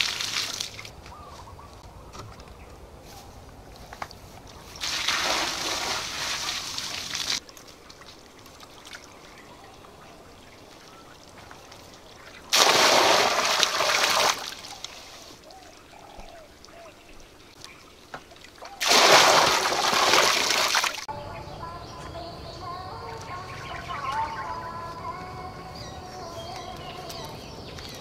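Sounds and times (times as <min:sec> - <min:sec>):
water pouring into pond: 0:00.0 - 0:01.0, 0:04.7 - 0:21.1.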